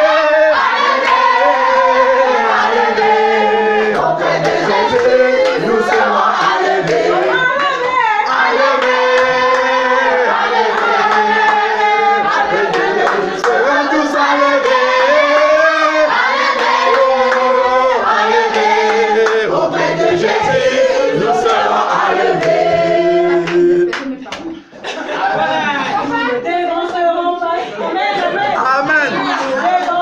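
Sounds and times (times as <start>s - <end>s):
group singing worship song: 0.0s - 30.0s
hands clapping: 3.9s - 9.8s, 12.6s - 13.8s, 16.5s - 17.6s, 18.5s - 19.5s, 21.4s - 21.7s, 22.4s - 22.6s, 23.4s - 24.6s, 29.3s - 30.0s.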